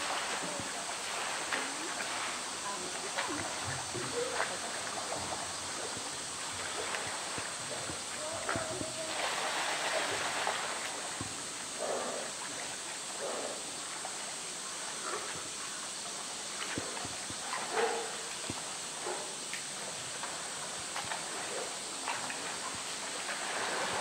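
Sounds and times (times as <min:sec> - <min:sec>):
bear splashing in water: 0:00.0 - 0:12.0.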